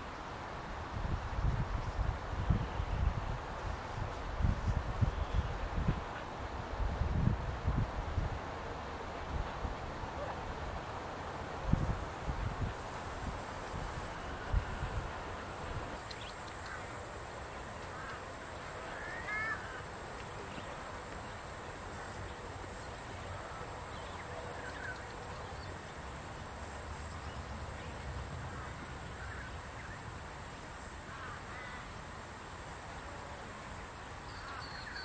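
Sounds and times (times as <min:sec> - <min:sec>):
steady background hiss: 0:00.0 - 0:35.0
birds calling: 0:14.0 - 0:26.0, 0:27.0 - 0:30.1.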